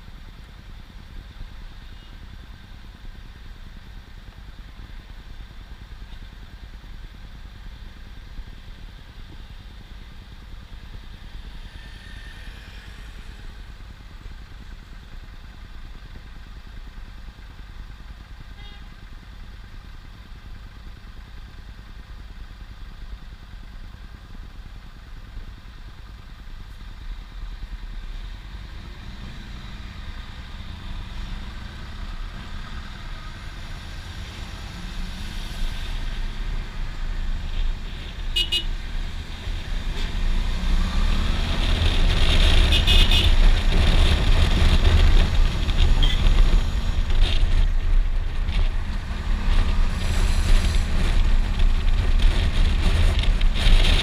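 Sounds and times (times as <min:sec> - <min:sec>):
motorcycle engine: 0:27.8 - 0:54.0
horn toot: 0:38.3 - 0:38.7, 0:42.7 - 0:43.4
wind noise on microphone: 0:40.8 - 0:54.0.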